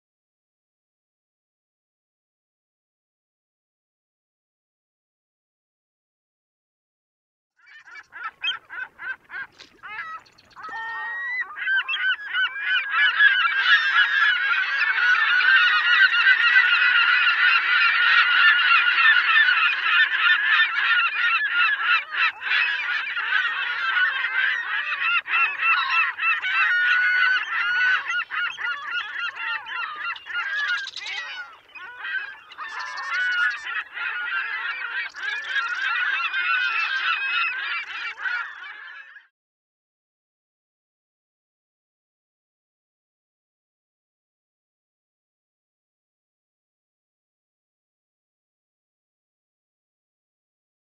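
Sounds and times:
flock of birds honking: 7.7s - 39.3s.

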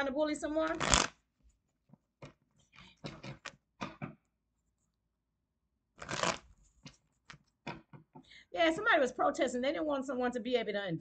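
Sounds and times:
cards shuffling: 0.6s - 1.2s, 6.0s - 7.5s.

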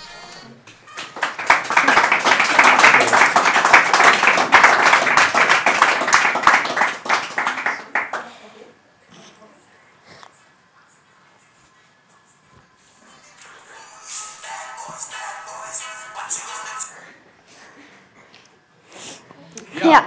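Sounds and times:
small group clapping: 0.6s - 8.5s.

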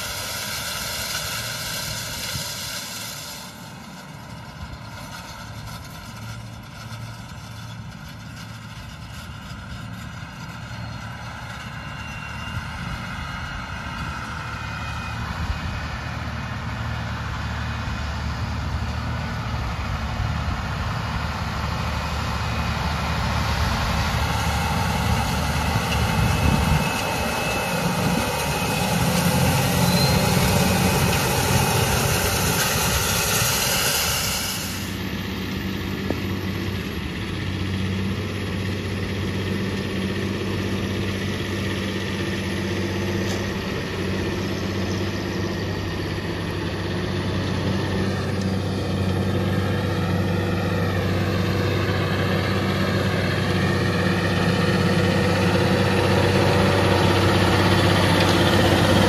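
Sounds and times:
tractor engine running: 0.0s - 59.0s
rushing noise: 19.4s - 37.7s.

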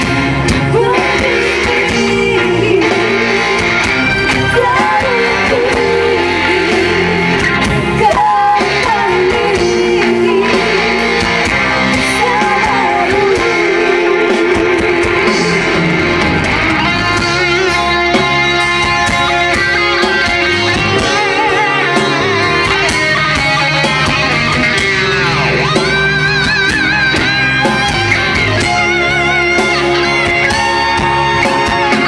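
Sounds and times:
electric guitar bending in pitch: 0.0s - 32.0s
live rock band playing: 0.0s - 32.0s
person singing: 0.5s - 18.3s, 20.7s - 24.0s.

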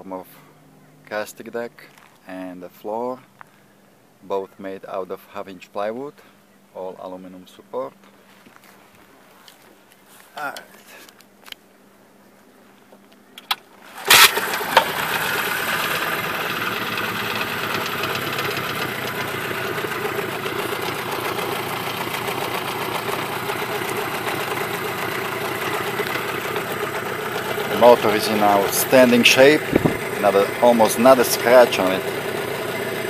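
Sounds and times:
outboard motor idling: 14.0s - 33.0s.

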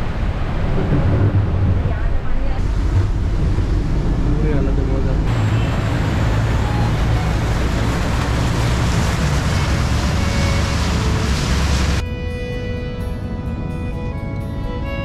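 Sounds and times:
heavy rain: 0.0s - 12.0s
road and engine rumble: 0.0s - 15.0s
tyres on standing water: 5.2s - 12.0s.

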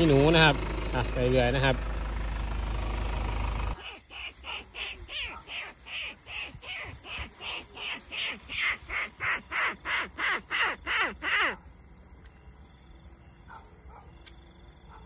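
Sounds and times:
short nasal animal calls: 3.8s - 11.6s.

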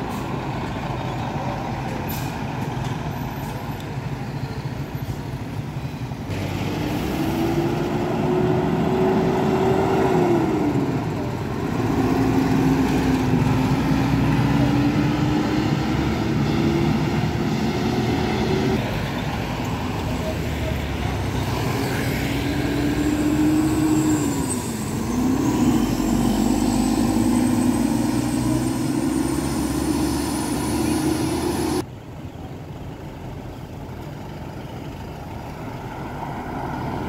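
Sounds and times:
heavy vehicle engine accelerating: 6.2s - 31.9s.

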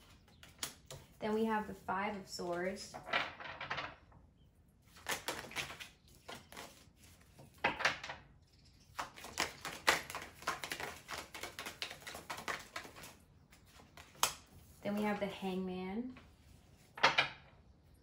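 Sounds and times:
cards shuffling: 4.9s - 7.6s, 8.9s - 15.2s.

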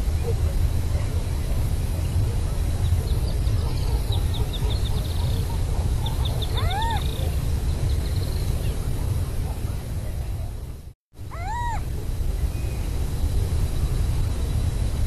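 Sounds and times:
owl meow-like calls: 6.4s - 7.2s, 11.3s - 11.9s.

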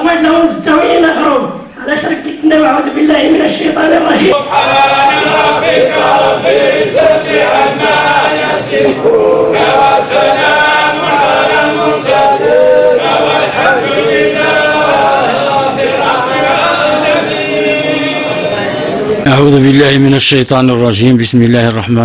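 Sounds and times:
men chanting in unison: 3.2s - 19.1s.

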